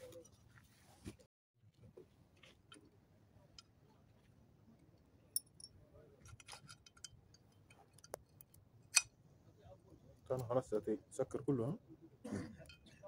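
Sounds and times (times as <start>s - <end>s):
faint metallic clinks: 5.3s - 9.2s, 12.5s - 13.0s.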